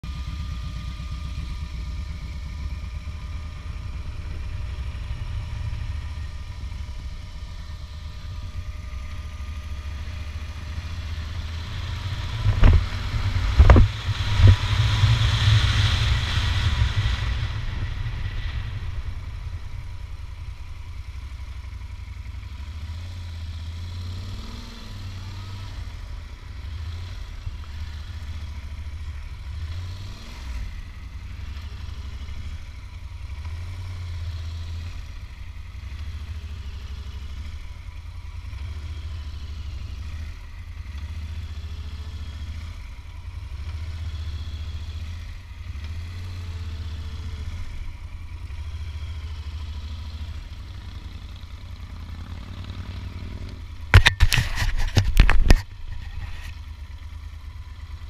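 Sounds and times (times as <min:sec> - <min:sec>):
vehicle engine running: 0:00.0 - 0:58.0.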